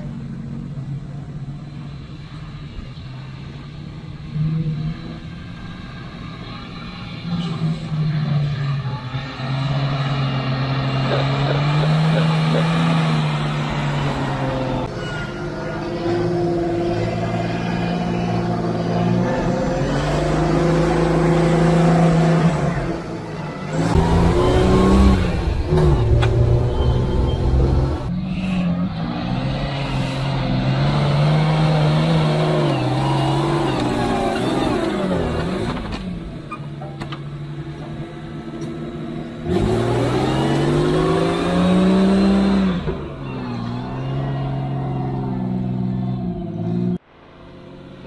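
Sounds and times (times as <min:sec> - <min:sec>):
truck engine running: 0:05.0 - 0:28.2.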